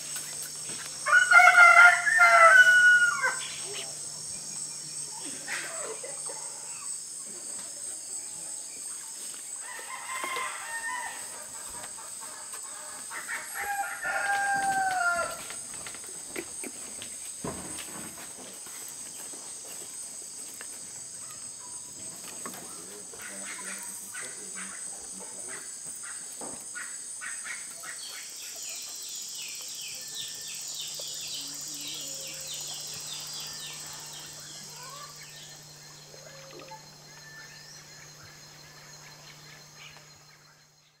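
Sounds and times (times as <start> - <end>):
insect chorus: 0.0 - 41.0
rhythmic pulsing insect call: 0.0 - 41.0
low steady hum: 29.2 - 41.0
faint chirps and clicks: 35.2 - 40.4.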